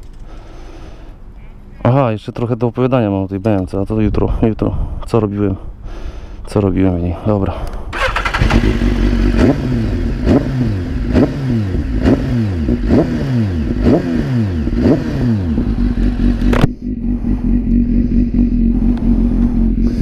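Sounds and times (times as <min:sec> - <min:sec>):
motorcycle engine idling: 0:08.0 - 0:11.2, 0:14.6 - 0:20.0
motorcycle engine revving: 0:08.0 - 0:20.0.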